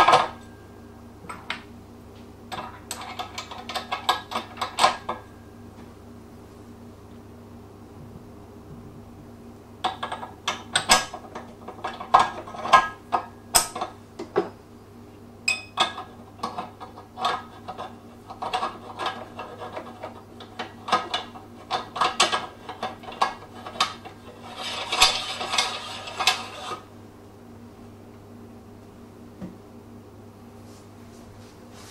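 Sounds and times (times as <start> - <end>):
metal scraping rattle: 23.0 - 26.8.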